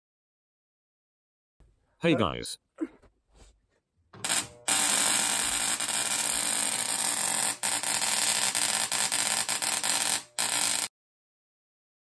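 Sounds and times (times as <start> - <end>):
tesla coil hissing buzz: 4.2 - 10.9.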